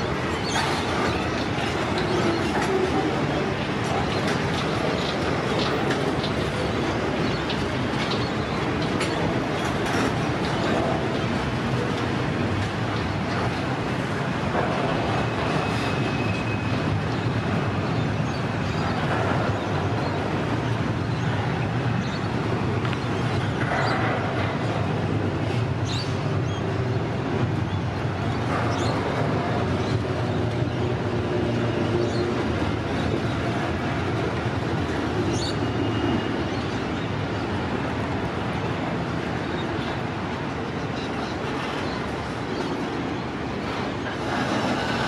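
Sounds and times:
train wheels rumbling on rail: 0.0 - 45.0.

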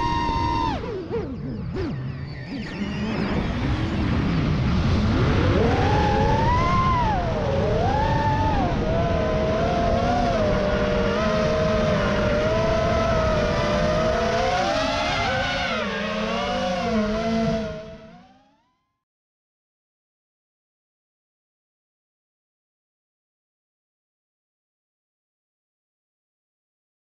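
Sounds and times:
drone propellers whining: 0.0 - 18.8.

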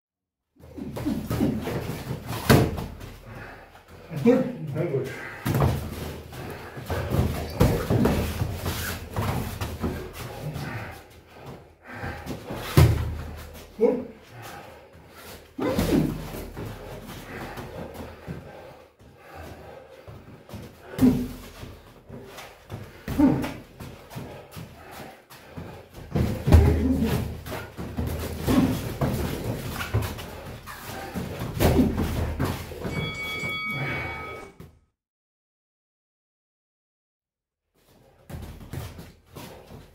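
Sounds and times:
feet moving on ring mat: 0.8 - 34.5
boxing gloves landing: 12.6 - 13.3
steady high tone: 32.9 - 34.5.

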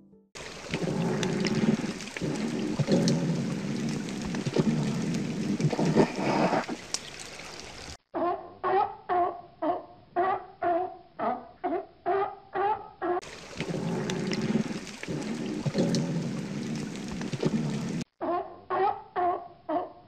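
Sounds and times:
water sloshing and splashing: 0.4 - 8.0, 13.2 - 18.1.

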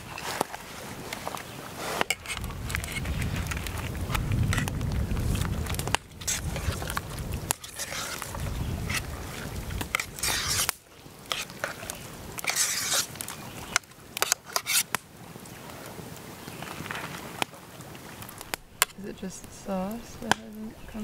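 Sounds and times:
spoon scraping cooking pot: 12.4 - 13.0.

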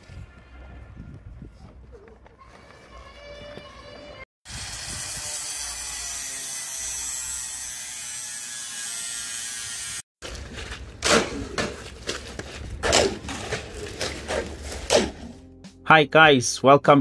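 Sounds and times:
tools scraping wet concrete: 10.2 - 15.4.

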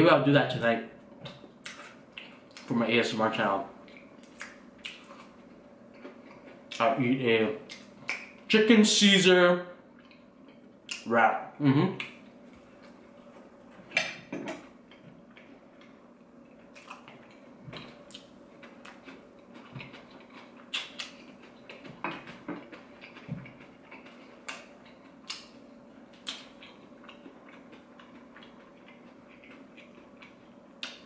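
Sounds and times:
faint steady hum: 0.0 - 31.0
crunching while chewing: 14.7 - 31.0.

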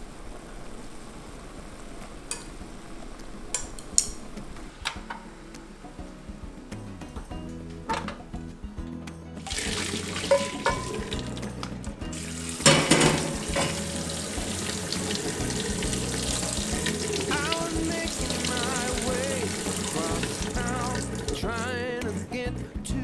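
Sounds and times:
tap water splashing into sink: 9.4 - 21.4.

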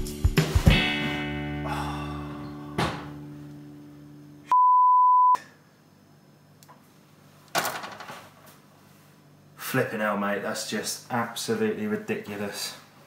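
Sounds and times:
acoustic guitar music: 0.4 - 4.1.

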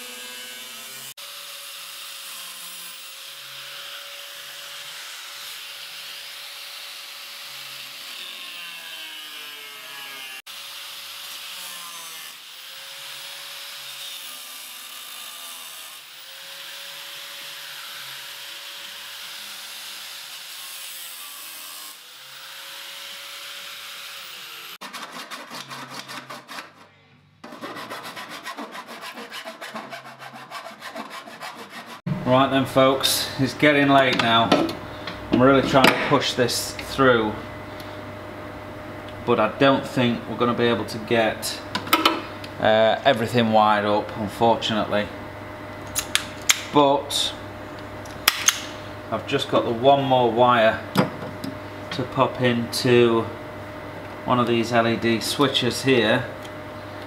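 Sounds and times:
angle grinder cutting metal: 0.0 - 37.3
hand file rasping: 24.7 - 32.1.

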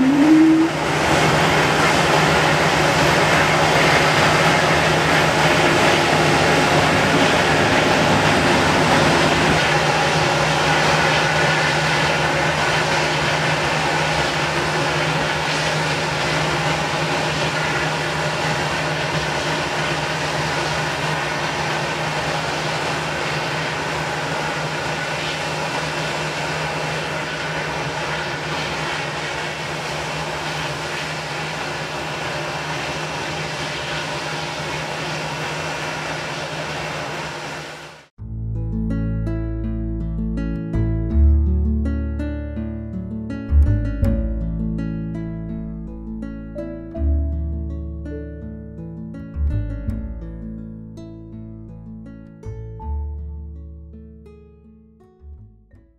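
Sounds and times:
jet engines at takeoff: 0.0 - 38.1.

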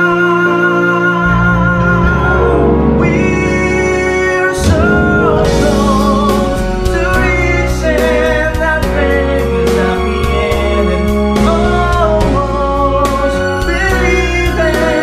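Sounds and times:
man singing a slow ballad: 0.0 - 15.0
backing track with bass line: 1.5 - 15.0
steady drum beat: 4.5 - 9.4.

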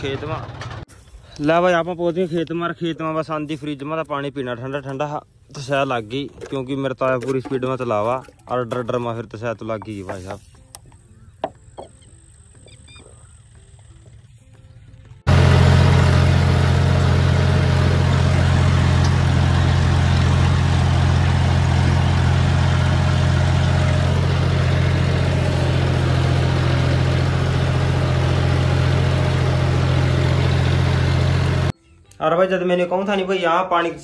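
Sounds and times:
tractor engine running: 0.0 - 1.5, 8.7 - 31.7.

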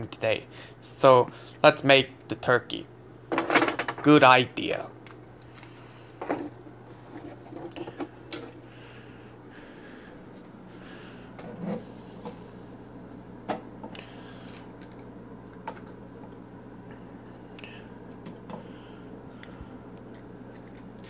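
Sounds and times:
low hum: 4.8 - 21.0.

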